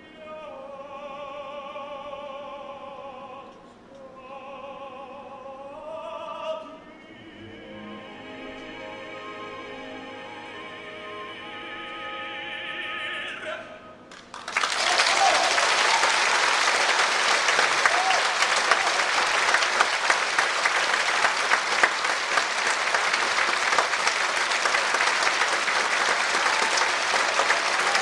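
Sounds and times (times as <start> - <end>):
operatic music with orchestra: 6.6 - 13.5
audience applauding loudly: 14.1 - 28.0.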